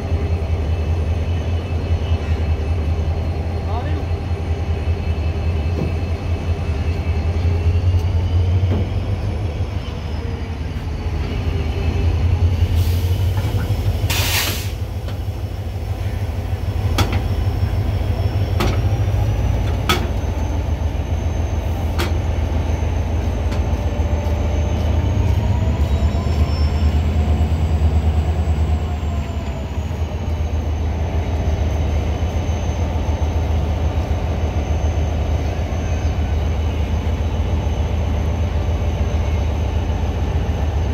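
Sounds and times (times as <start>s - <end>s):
diesel locomotive idling: 0.0s - 40.9s
burst of hissing: 14.1s - 14.8s.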